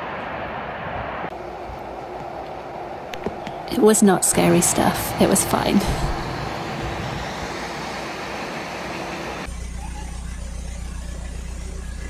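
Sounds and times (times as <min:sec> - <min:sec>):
boat engine idling: 0:01.4 - 0:12.0.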